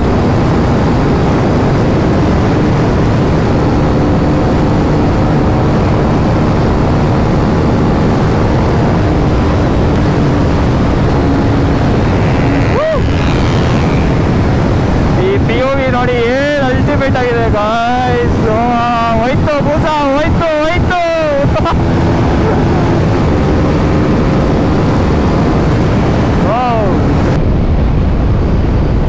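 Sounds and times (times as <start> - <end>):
motorcycle engine droning: 0.0 - 29.0
wind rushing on microphone: 0.0 - 29.0
rising and falling tone: 1.0 - 15.3.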